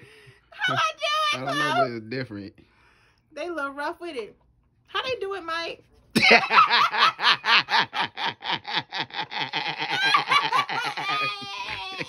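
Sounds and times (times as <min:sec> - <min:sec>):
woman laughing hard: 0:06.2 - 0:12.0.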